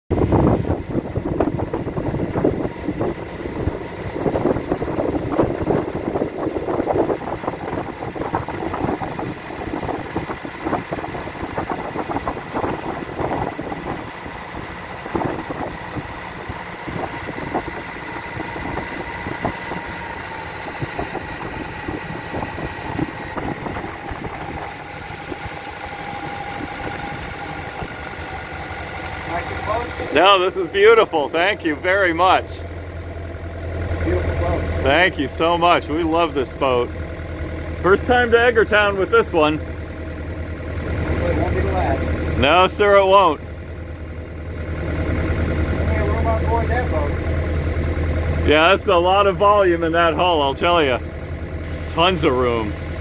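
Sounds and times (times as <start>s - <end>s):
wind noise: 0.1s - 28.4s
boat engine whine: 0.1s - 53.0s.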